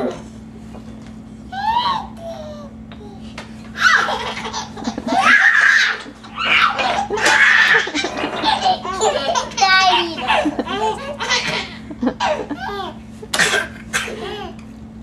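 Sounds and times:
baby laughing: 3.8s - 13.0s, 14.0s - 14.6s.

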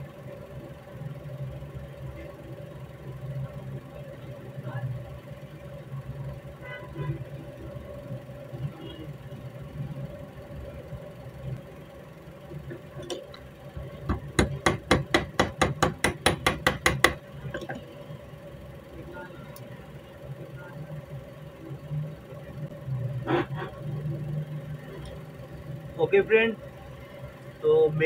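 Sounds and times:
steady low hum: 0.0s - 28.0s
small hammer tapping metal: 14.1s - 17.7s.

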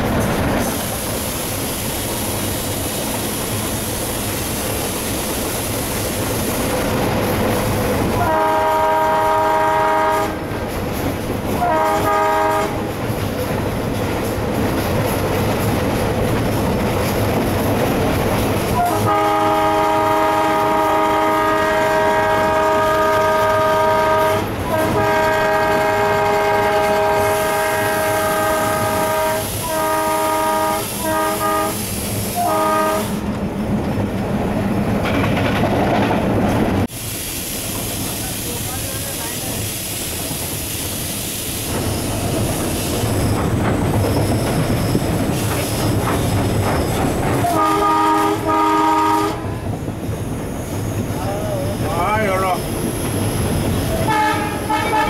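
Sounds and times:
rail clatter: 0.0s - 36.9s, 37.7s - 55.0s
locomotive air horn blasts: 8.2s - 10.5s, 11.6s - 12.9s, 18.7s - 33.3s, 47.4s - 49.6s, 54.0s - 55.0s.

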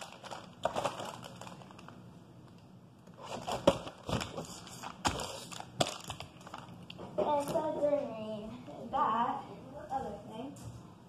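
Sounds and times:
plastic wrapping crinkling: 0.0s - 7.0s.

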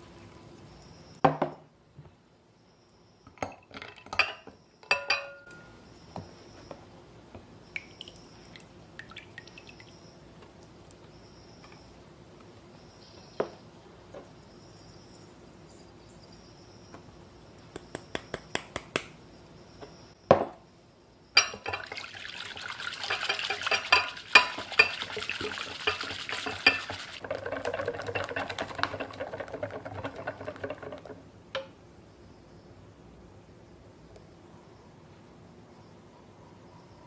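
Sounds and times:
whisk clicking against glass bowl: 23.0s - 31.2s.

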